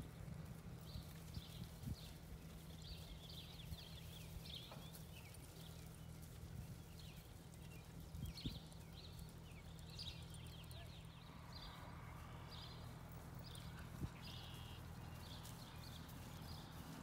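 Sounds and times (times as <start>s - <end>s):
faint hoofbeats on grass: 0.0s - 17.0s
low steady hum: 0.0s - 17.0s.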